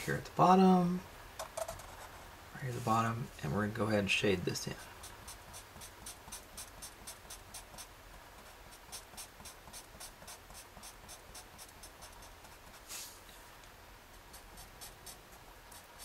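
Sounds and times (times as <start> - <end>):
marker scratching on paper: 4.8 - 13.2, 14.1 - 16.0.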